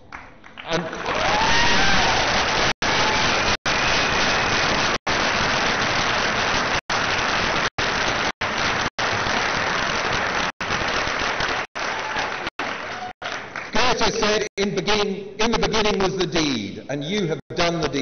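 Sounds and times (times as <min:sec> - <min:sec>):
large audience applauding: 0:00.0 - 0:14.1.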